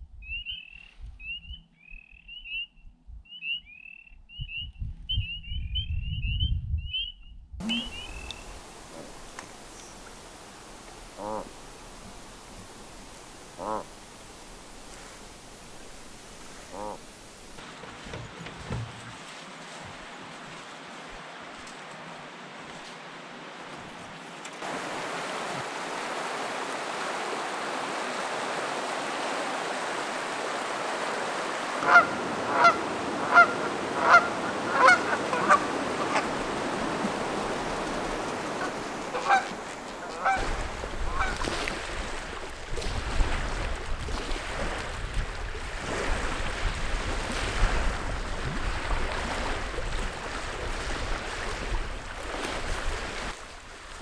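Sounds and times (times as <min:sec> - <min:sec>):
wind rumbling on microphone: 0:04.2 - 0:19.2, 0:24.6 - 0:54.0
goose honking: 0:07.6 - 0:09.2, 0:11.0 - 0:11.6, 0:13.6 - 0:13.9, 0:16.6 - 0:17.2, 0:31.8 - 0:36.4, 0:38.5 - 0:40.5, 0:41.1 - 0:41.4.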